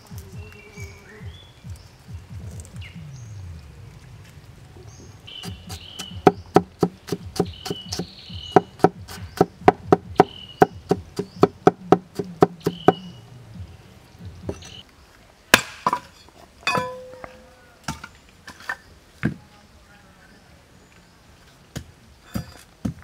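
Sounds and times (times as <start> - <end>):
cleaver chopping on wooden block: 5.4 - 13.0, 15.5 - 16.1.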